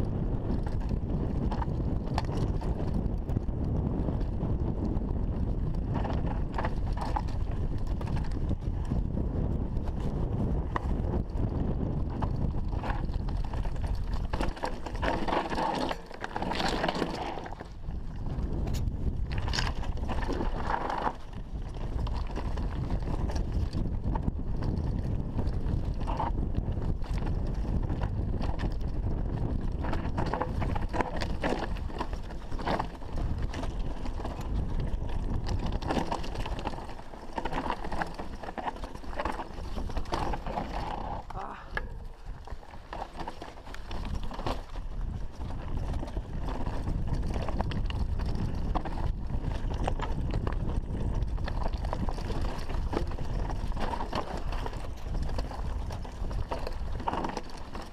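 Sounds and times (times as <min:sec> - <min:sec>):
bike rattling over bumps: 0:00.0 - 0:57.9
wind buffeting microphone: 0:00.0 - 0:57.9
tyres rolling over loose stones: 0:00.2 - 0:57.9.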